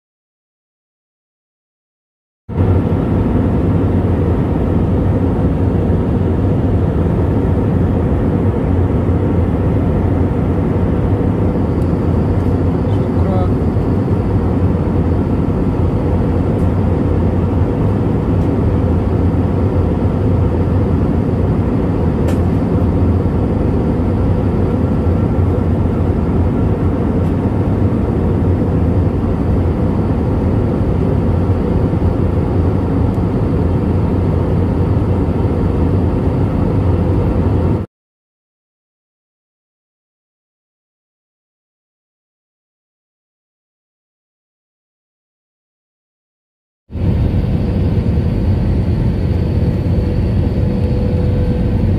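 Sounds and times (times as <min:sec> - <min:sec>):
airliner cabin engine rumble: 0:02.5 - 0:37.9, 0:46.9 - 0:51.9.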